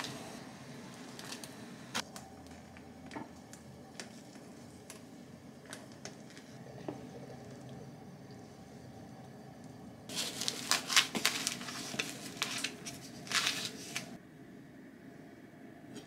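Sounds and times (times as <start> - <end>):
crisp rustling and crinkling: 10.1 - 14.2.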